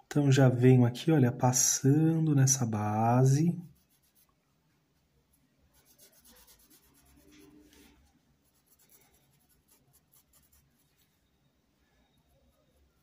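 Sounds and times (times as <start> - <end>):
paintbrush scratching on fabric: 3.6 - 4.4, 5.0 - 11.3.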